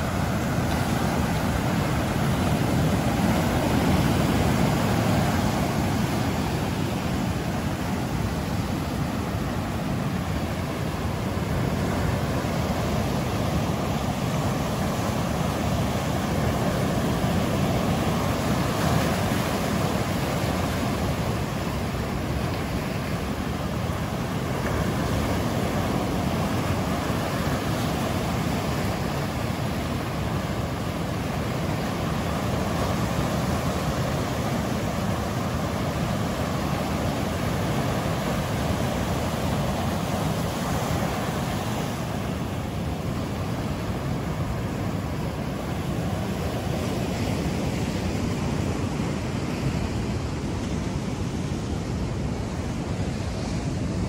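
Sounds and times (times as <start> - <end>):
ocean surf on sandy beach: 0.0 - 54.0.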